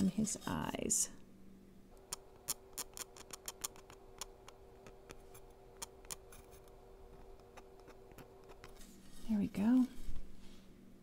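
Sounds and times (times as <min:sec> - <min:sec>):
spreader card clicking on stencil: 0:02.0 - 0:05.2.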